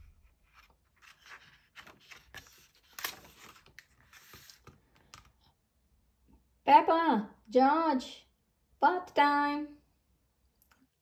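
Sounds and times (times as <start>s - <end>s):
paper page rustling: 0.0s - 5.2s.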